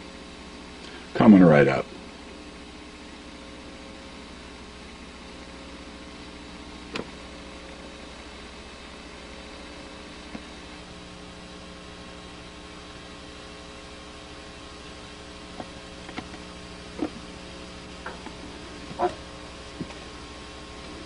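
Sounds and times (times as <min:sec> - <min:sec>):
electrical hum with hiss: 0:00.0 - 0:21.0.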